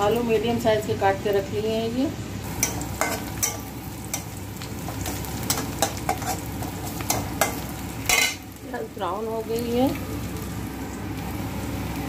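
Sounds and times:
onions sizzling in hot oil: 0.0 - 12.0
metal spatula scraping pan: 5.5 - 6.5.

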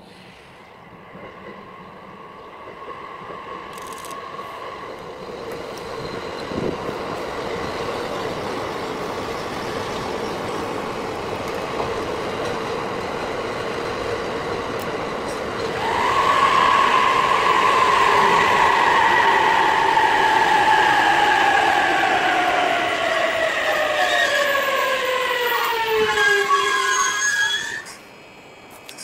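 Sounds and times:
electric train rumbling on rails: 0.0 - 29.0.

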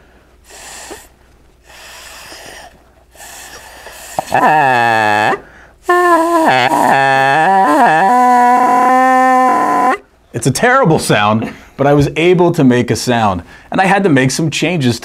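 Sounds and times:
breathy puffs of air: 0.0 - 6.7
buzzing membrane honk: 4.2 - 8.8.

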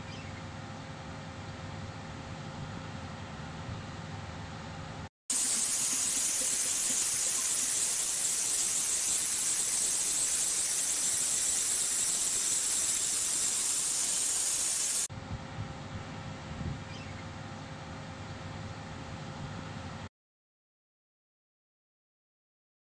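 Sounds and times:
waterjet cutter hissing: 5.3 - 15.1.

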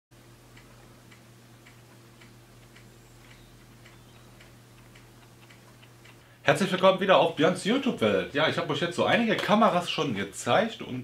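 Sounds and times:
faint even ticking: 0.2 - 8.0
low electrical hum: 0.2 - 11.0.

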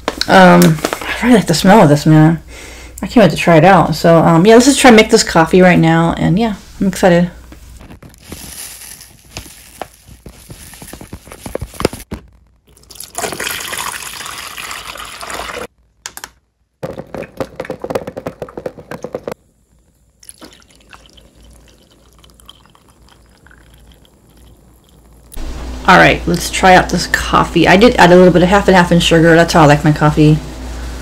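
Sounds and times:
coffee maker brewing: 9.1 - 15.7, 17.2 - 25.5
coffee pouring into mug: 12.7 - 15.7, 20.2 - 25.4.

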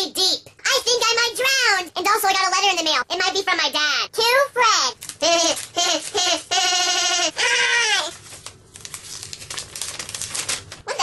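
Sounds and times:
envelope paper tearing: 5.0 - 11.0
high-pitched cartoon voice cries: 5.2 - 8.2.

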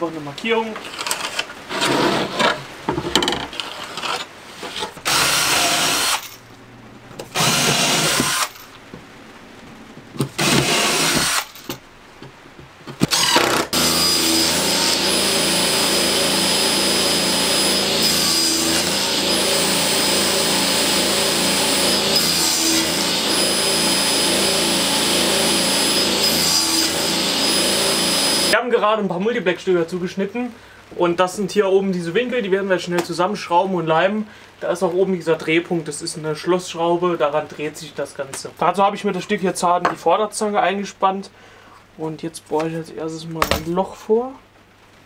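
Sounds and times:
cordless drill driving screws: 5.0 - 6.3, 7.3 - 8.6, 10.3 - 11.6, 13.0 - 28.6
table saw cutting plywood: 5.0 - 6.3, 7.2 - 8.6, 10.3 - 11.6, 13.0 - 28.6.

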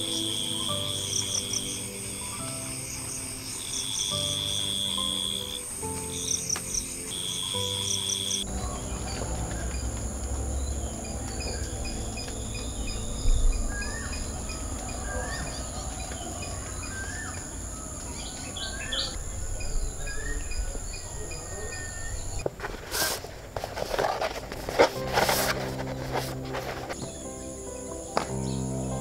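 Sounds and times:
birds calling: 0.0 - 22.4
high insect drone: 0.0 - 22.4
crickets chirping: 0.0 - 29.0.

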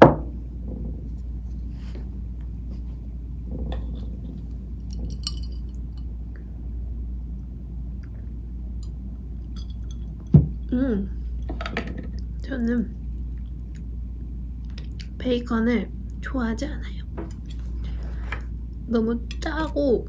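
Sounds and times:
low room hum: 0.0 - 20.0
glass and tableware clinking: 4.9 - 6.1, 9.5 - 10.6
chewing: 13.2 - 13.9.

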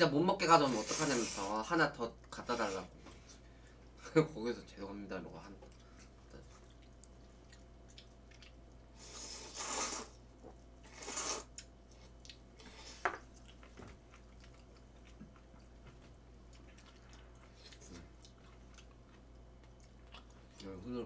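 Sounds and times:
hissing noodle slurps: 0.7 - 1.5, 9.0 - 10.2, 10.9 - 11.5
soft chewing: 5.4 - 21.0.

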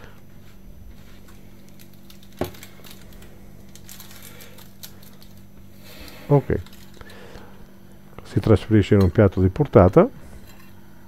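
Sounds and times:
steady low hum: 0.0 - 11.0
parchment paper crinkling: 0.5 - 7.5.

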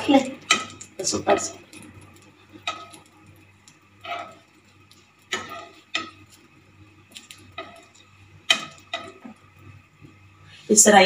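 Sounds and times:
metal tongs clinking on pan: 0.1 - 3.2, 5.3 - 6.2, 7.1 - 9.2.

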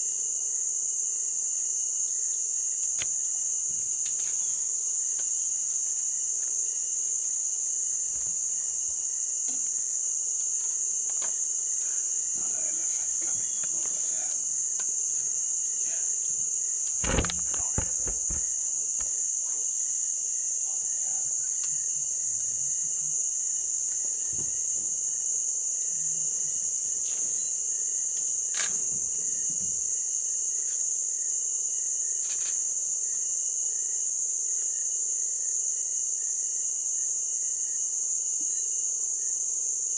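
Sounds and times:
insects droning: 0.0 - 39.9
knocks: 17.0 - 18.5.

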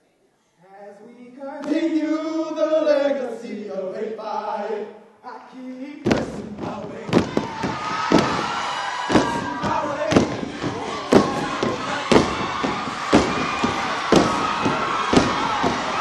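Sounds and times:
men chanting into a microphone: 0.7 - 7.6, 9.2 - 16.0
stomps on a stage: 6.0 - 16.0
crowd cheering: 6.6 - 16.0.

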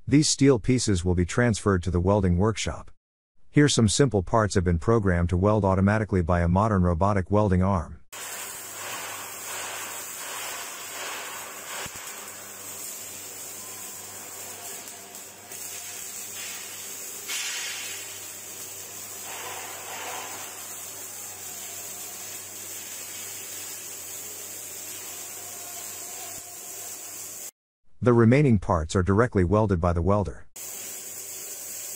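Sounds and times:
steady hissing noise: 8.2 - 27.5, 30.6 - 31.9.

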